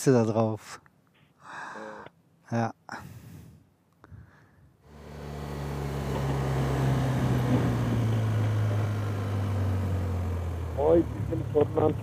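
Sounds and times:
motorcycle engine running: 4.9s - 12.0s.

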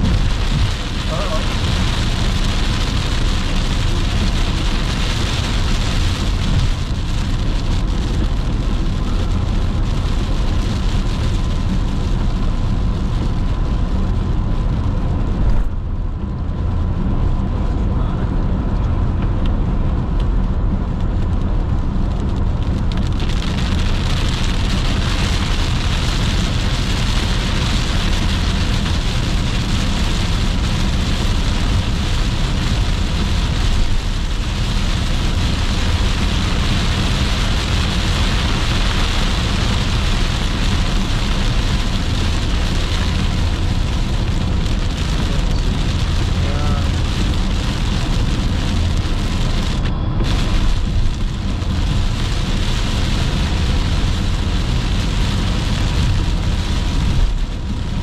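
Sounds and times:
rain and wet road spray hiss: 0.0s - 58.0s
road and tyre rumble: 0.0s - 58.0s.

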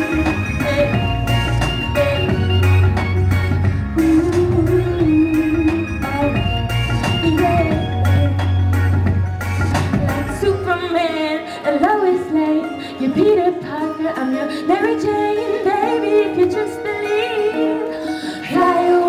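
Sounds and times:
woman singing into microphone: 0.0s - 8.5s, 9.9s - 19.0s
heavy bass: 0.0s - 10.9s
backing music: 0.0s - 19.0s.

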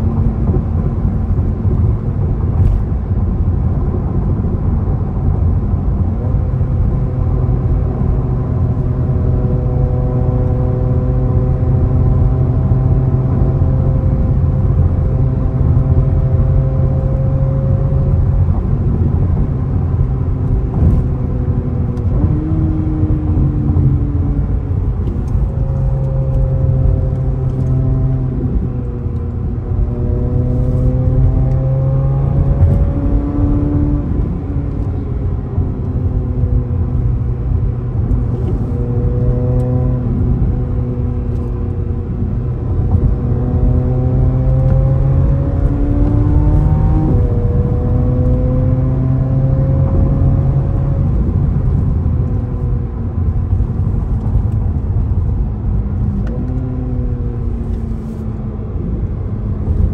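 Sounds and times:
car engine at road speed: 0.0s - 59.9s
low road rumble: 0.0s - 59.9s.

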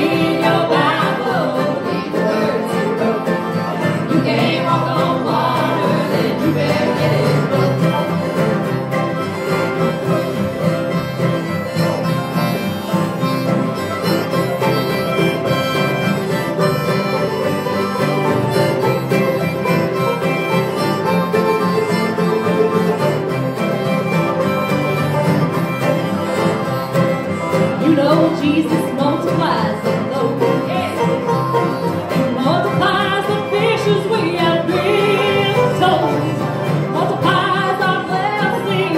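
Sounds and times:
person singing: 0.0s - 8.6s, 27.8s - 31.3s, 32.3s - 38.9s
acoustic string band playing: 0.0s - 38.9s.

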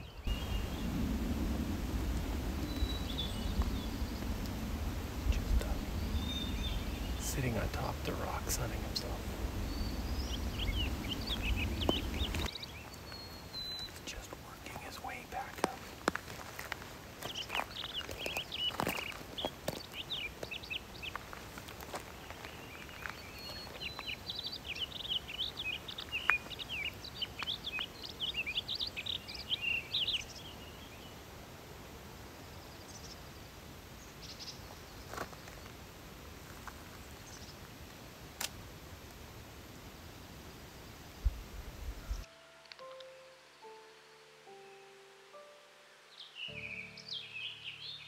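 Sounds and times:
steady outdoor hiss: 0.0s - 48.0s
small bird twittering: 5.3s - 15.6s.

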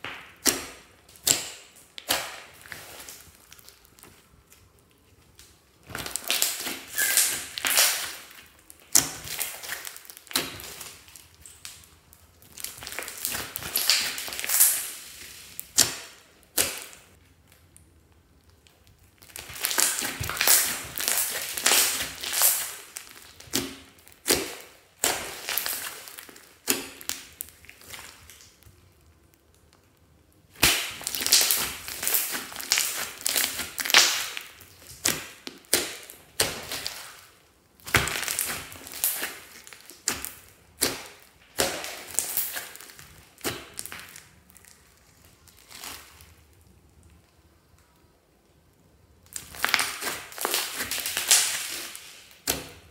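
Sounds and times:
slime squishing and crackling: 0.0s - 48.0s, 48.8s - 52.9s.

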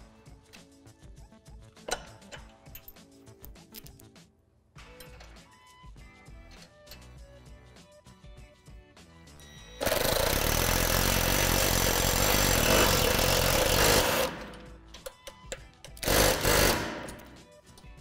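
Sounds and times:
cordless impact driver running: 9.8s - 14.6s, 16.0s - 17.3s.

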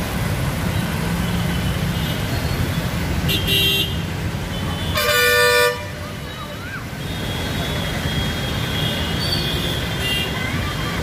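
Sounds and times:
traffic engine rumble: 0.0s - 11.0s
car horn: 3.3s - 4.0s, 4.8s - 6.0s.

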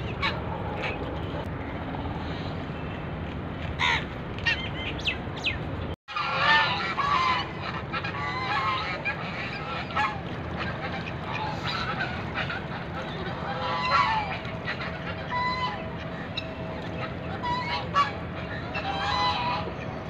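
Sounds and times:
geese and ducks honking: 0.0s - 1.5s, 6.1s - 20.0s.

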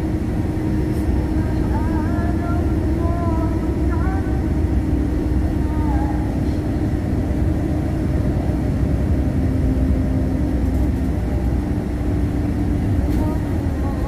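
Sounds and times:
bus engine and road rumble: 0.0s - 14.0s
constant hum: 0.0s - 14.0s.

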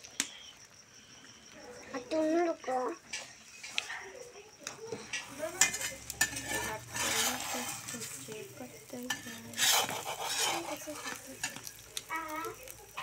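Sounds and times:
egg sizzling: 4.6s - 13.0s
metal spatula scraping griddle: 5.0s - 12.0s.

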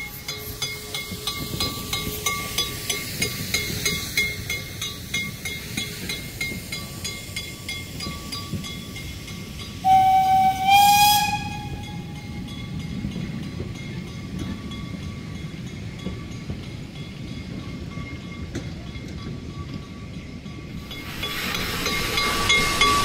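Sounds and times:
hiss of steam: 0.0s - 13.1s, 20.7s - 23.0s
train wheels clicking on track: 0.0s - 23.0s
steam locomotive whistle: 9.8s - 12.4s.

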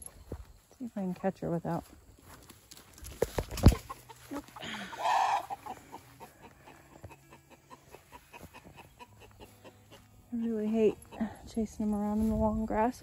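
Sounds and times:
thumps and rustling in grass: 2.2s - 4.2s
hen squawking: 4.6s - 6.8s.

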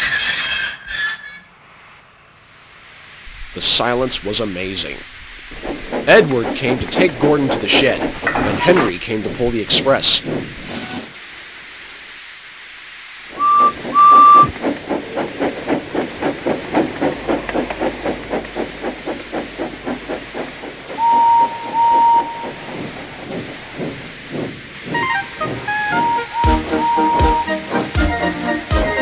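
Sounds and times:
steam locomotive chuffing: 3.0s - 29.0s
steam locomotive whistle toots: 13.3s - 14.5s, 21.0s - 22.6s, 24.9s - 29.0s.

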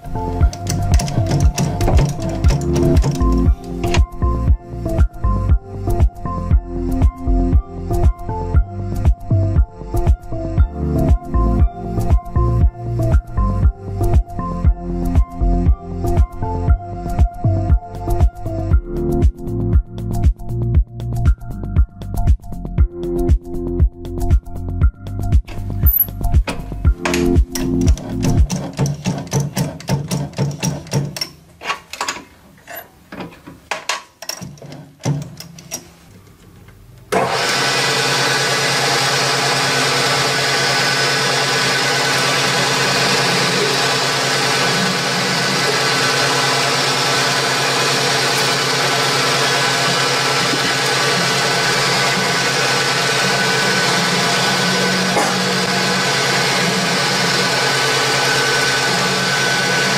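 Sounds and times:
metal lathe cutting: 37.2s - 59.9s.

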